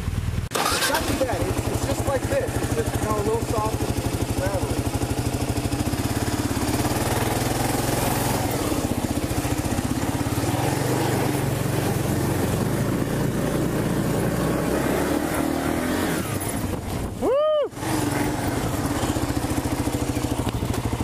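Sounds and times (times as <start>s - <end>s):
motorcycle engine revving: 0.0s - 21.0s
wind noise: 16.4s - 17.3s.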